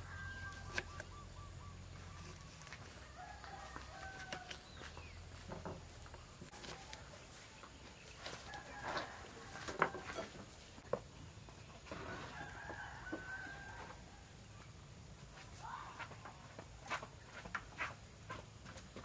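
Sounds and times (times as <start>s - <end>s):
rooster crowing: 0.0s - 0.8s, 2.8s - 4.6s, 8.4s - 10.3s, 12.1s - 14.3s.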